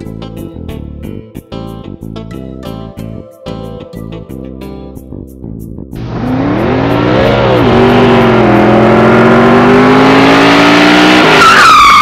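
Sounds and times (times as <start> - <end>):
car engine revving: 6.0 - 12.0
tires screeching: 6.0 - 12.0.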